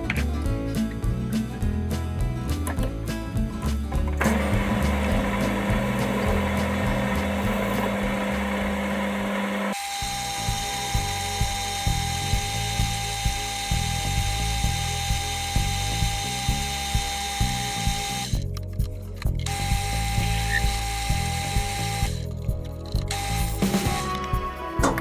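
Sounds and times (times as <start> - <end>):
background music with steady beat: 0.0 - 9.4, 10.0 - 25.0
metal lathe whine: 4.3 - 18.3.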